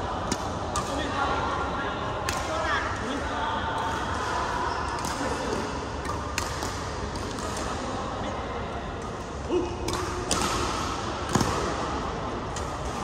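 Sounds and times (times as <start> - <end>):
voices in a hall: 0.0 - 13.0
rackets hitting shuttlecock: 0.2 - 1.1, 3.8 - 7.9, 9.8 - 13.0.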